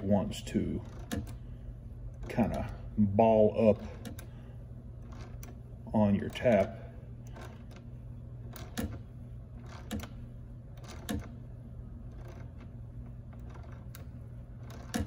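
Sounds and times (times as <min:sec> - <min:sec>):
ratcheting tap handle clicks: 0:00.8 - 0:01.4.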